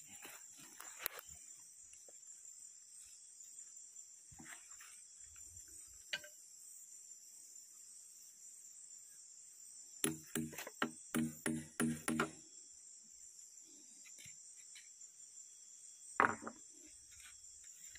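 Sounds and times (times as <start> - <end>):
insects chirping: 0.0 - 17.9
sharp knocks: 10.0 - 12.4.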